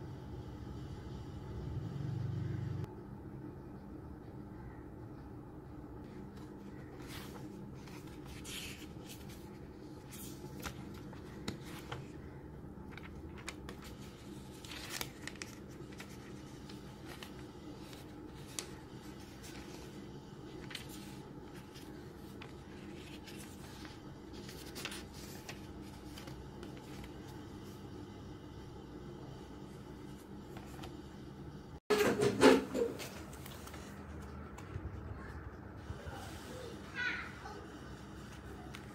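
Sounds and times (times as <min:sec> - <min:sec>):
steady low hum: 0:00.0 - 0:31.8
notebook pages rustling: 0:06.0 - 0:27.8, 0:29.7 - 0:31.1, 0:33.0 - 0:35.4.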